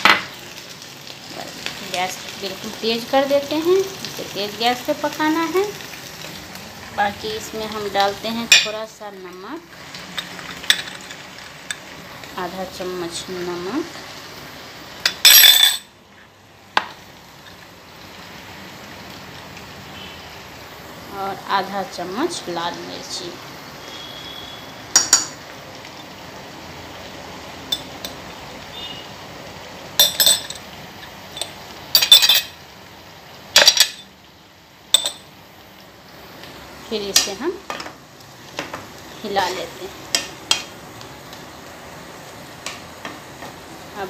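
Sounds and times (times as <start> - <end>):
metal utensils clinking on dishes: 15.1 - 15.9, 30.0 - 30.7, 31.3 - 32.6, 33.6 - 34.1, 35.0 - 35.3
spoon clinking: 15.1 - 15.9, 35.0 - 35.3.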